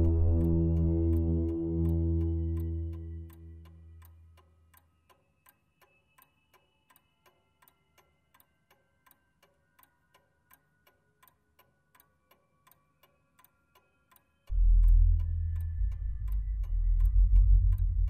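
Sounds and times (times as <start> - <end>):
faint held high notes: 0.0 - 3.7
low musical tones: 0.0 - 4.8, 14.4 - 18.0
faint ticking: 0.0 - 18.0.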